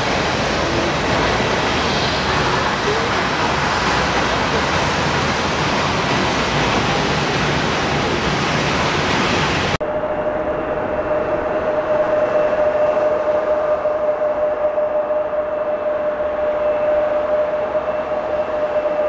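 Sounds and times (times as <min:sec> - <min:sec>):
jet engine high whine: 0:00.0 - 0:19.0
jet engines at high power: 0:00.0 - 0:19.0.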